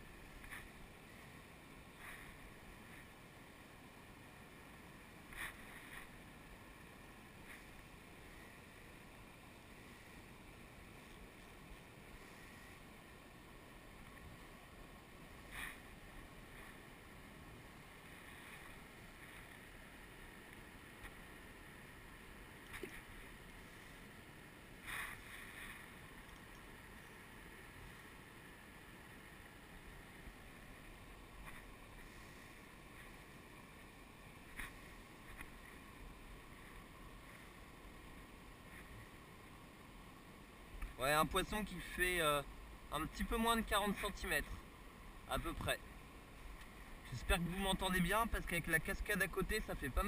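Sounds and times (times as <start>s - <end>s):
faint water rushing: 0.0s - 50.0s
light clicks: 26.2s - 26.7s.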